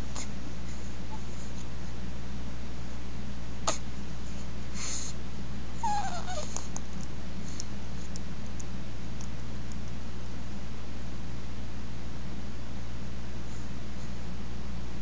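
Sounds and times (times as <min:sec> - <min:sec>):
steady low hum: 0:00.0 - 0:15.0
baby whimpering: 0:05.8 - 0:06.7.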